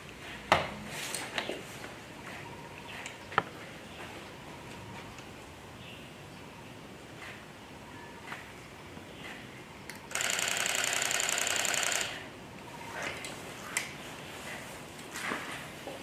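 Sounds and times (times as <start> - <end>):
camcorder zoom motor whirring: 10.1 - 12.3.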